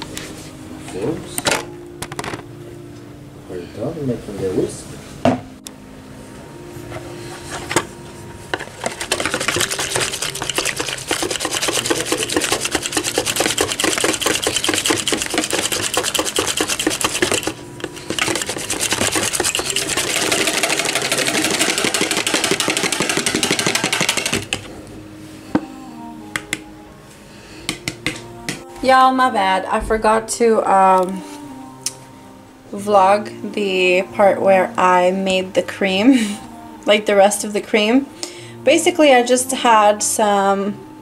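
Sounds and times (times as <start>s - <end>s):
whisk beating cream in bowl: 8.6s - 24.6s.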